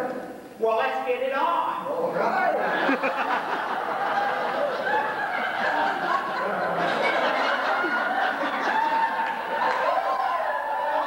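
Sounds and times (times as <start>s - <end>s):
audience laughing: 2.5s - 10.2s.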